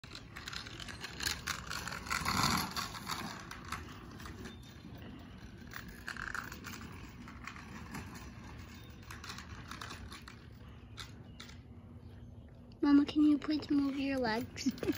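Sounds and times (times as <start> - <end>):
scooter wheels scraping on asphalt: 0.0 - 11.4.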